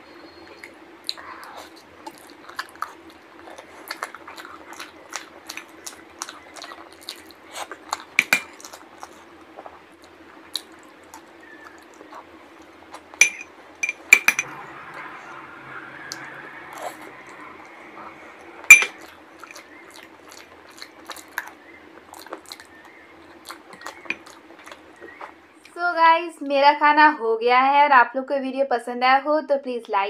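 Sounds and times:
person chewing: 0.6 - 14.4, 16.1 - 25.7
spoon scraping glass bowl: 13.2 - 14.5, 18.7 - 19.0.

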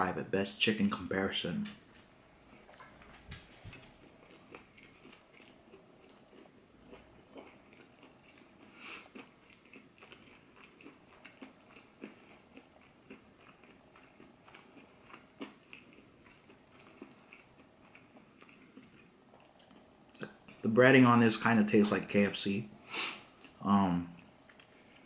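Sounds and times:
crunchy chewing: 2.3 - 20.7, 24.2 - 25.0.

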